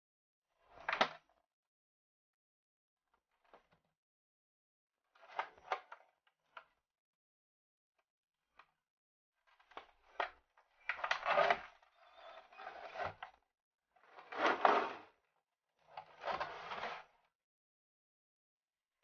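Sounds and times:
box scraping out of cardboard sleeve: 0:14.3 - 0:15.0.

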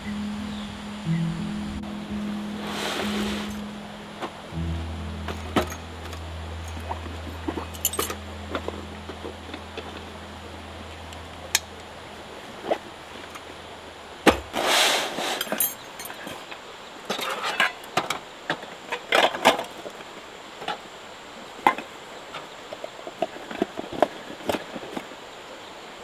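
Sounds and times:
low steady hum: 0:00.0 - 0:14.6
short hiss: 0:02.6 - 0:03.7, 0:14.5 - 0:15.6
hard objects clinking and knocking: 0:07.5 - 0:08.8.

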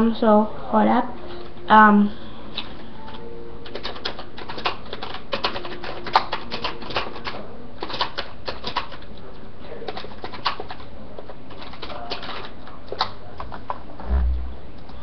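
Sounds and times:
keyboard typing clicks: 0:02.6 - 0:09.0.

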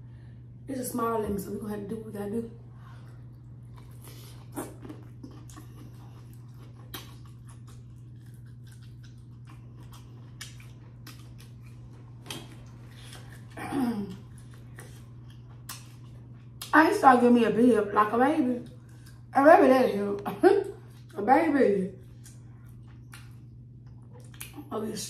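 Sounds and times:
wet chewing clicks and crackles: 0:03.3 - 0:16.8, 0:22.0 - 0:24.7.

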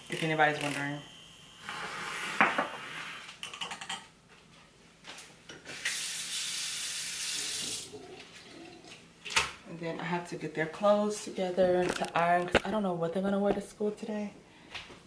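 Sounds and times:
faucet running: 0:05.8 - 0:08.9
faint handling noises: 0:11.2 - 0:12.8.

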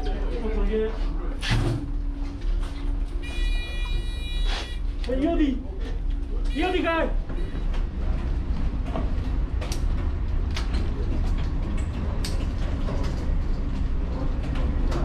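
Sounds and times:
low rumble inside ship: 0:00.0 - 0:15.0.

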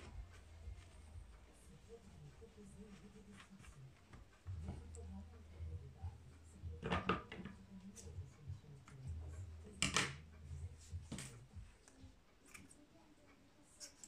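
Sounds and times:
scissors snipping hair: 0:11.8 - 0:12.9.

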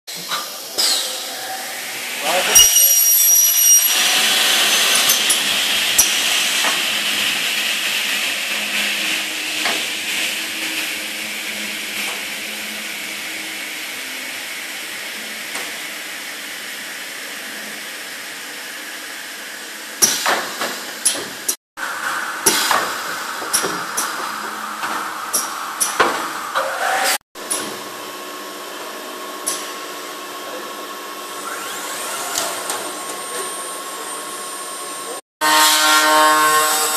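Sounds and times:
machine whirring hiss: 0:03.9 - 0:17.7, 0:18.9 - 0:26.6
pneumatic clamps clicking: 0:25.3 - 0:26.1.

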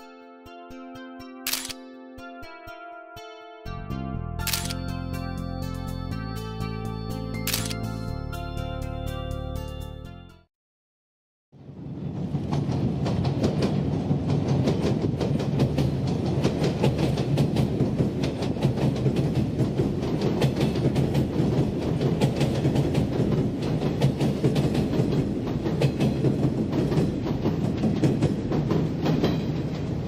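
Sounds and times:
electric train rumbling: 0:11.6 - 0:30.0
wheel clacks over rail joints: 0:12.5 - 0:30.0.

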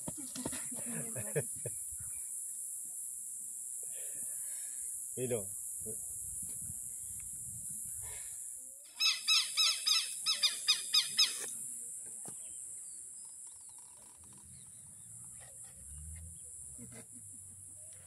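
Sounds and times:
bird calling arching notes: 0:09.0 - 0:11.5.

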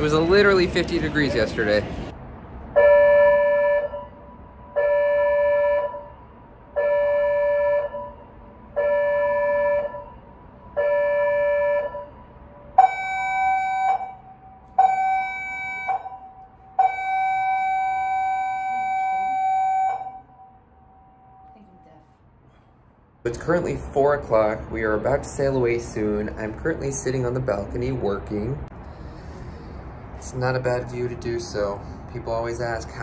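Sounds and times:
ship emergency alarm blasts: 0:02.7 - 0:22.0.

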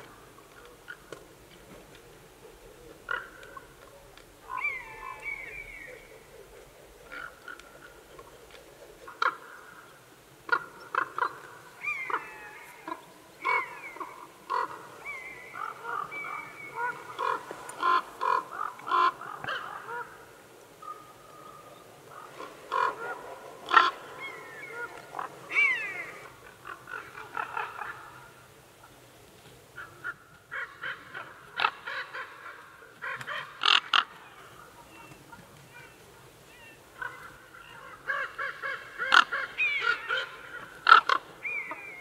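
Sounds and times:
corvids croaking: 0:00.0 - 0:29.0.

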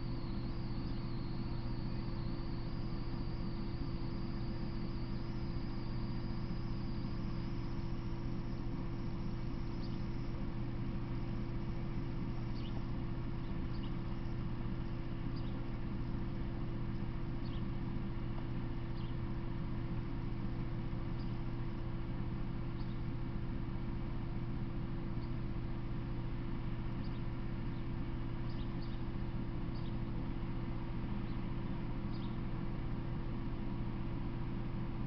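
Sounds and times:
constant hiss: 0:00.0 - 0:35.0
steady low hum: 0:00.0 - 0:35.0.

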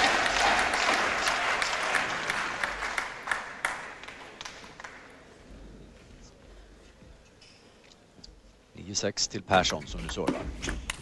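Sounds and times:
crowd applauding: 0:00.0 - 0:05.3.

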